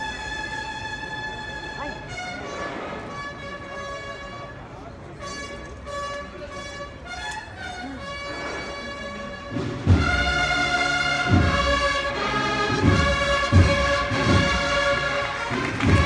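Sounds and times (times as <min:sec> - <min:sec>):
brass band playing march: 0:00.0 - 0:16.0
deep drum strokes: 0:08.6 - 0:16.0.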